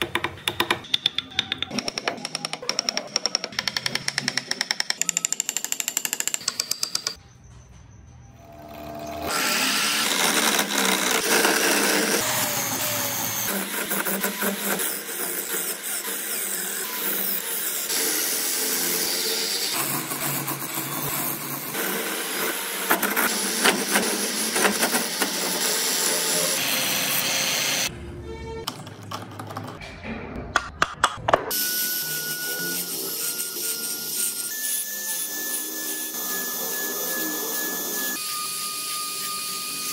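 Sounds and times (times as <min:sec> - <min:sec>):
hand carving clicks and scraping: 0:00.0 - 0:07.2
lathe gouge grinding wood: 0:08.7 - 0:27.9.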